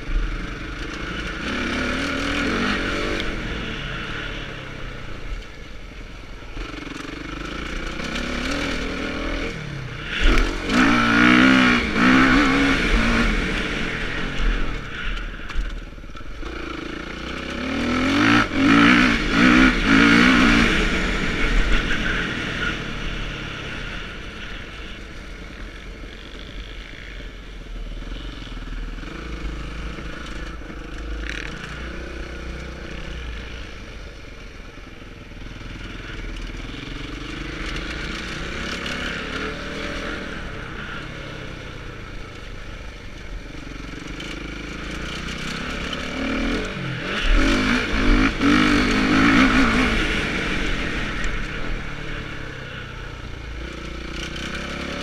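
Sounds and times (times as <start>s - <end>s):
motocross bike engine revving: 0.0s - 5.2s, 6.5s - 25.2s, 35.8s - 42.4s, 43.4s - 55.0s.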